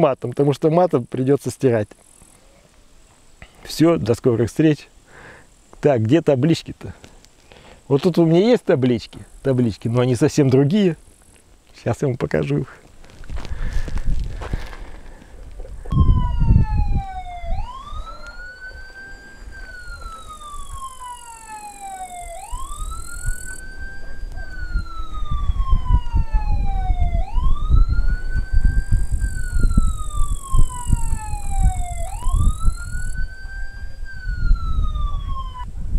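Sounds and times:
siren wailing: 15.9 - 35.9.

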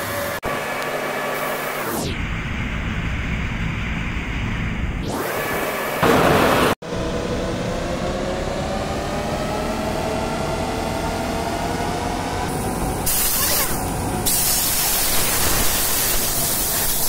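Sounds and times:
faint rising whine: 0.0 - 13.1
workshop hum: 0.0 - 17.0
compressed air hissing: 12.5 - 17.0.

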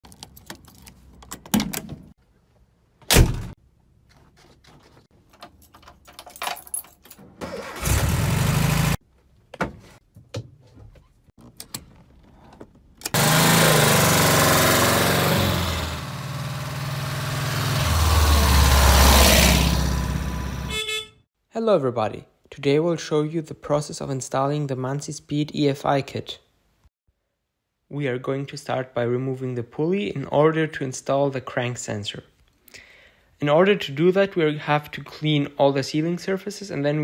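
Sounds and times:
keys clicking at ignition: 0.0 - 1.8, 5.3 - 7.2
van engine starting and running: 7.2 - 9.0, 11.4 - 20.8.

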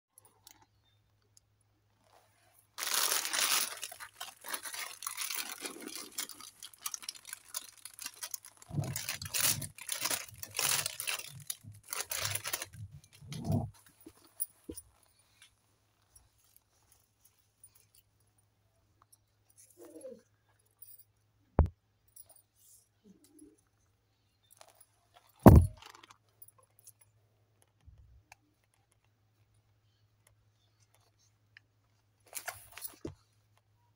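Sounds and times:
deflated balloons rustling: 2.1 - 15.4.

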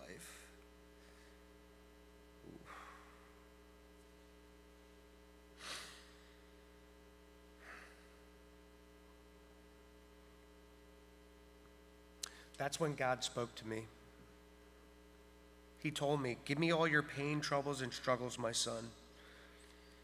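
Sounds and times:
steady mains hum: 0.0 - 20.0
man sniffing: 5.6 - 6.2.

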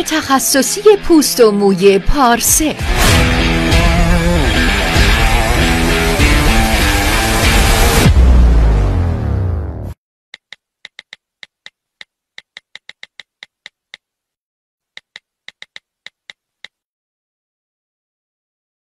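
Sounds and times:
music: 0.0 - 10.0.

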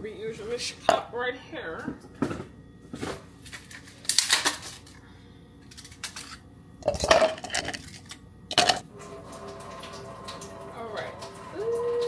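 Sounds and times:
dishes clinking: 8.5 - 8.8.

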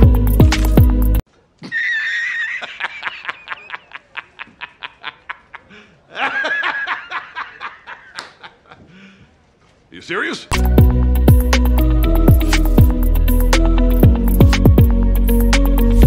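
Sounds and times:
man laughing heartily: 1.6 - 9.2.

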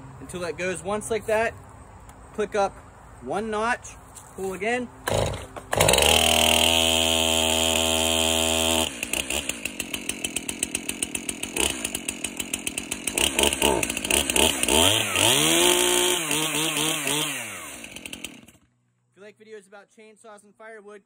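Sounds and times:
chainsaw engine running and revving: 5.0 - 18.6.

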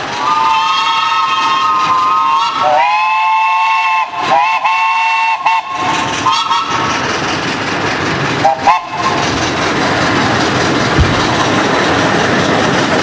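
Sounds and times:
steam locomotive whistle: 0.2 - 6.8, 8.4 - 9.2.

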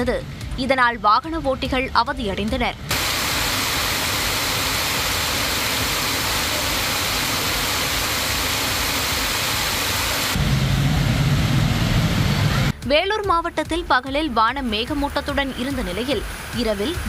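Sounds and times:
heavy rain pouring: 2.9 - 12.8, 15.2 - 17.0.

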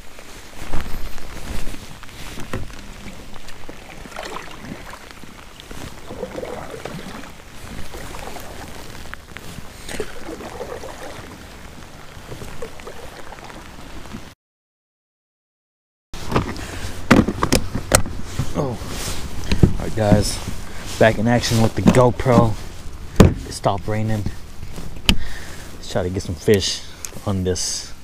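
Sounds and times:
kayak paddle splashing in water: 2.4 - 14.2.

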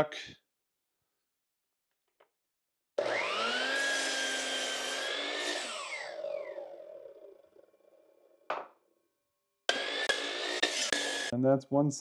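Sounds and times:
miter saw cutting wood: 3.0 - 8.1, 9.7 - 11.3.

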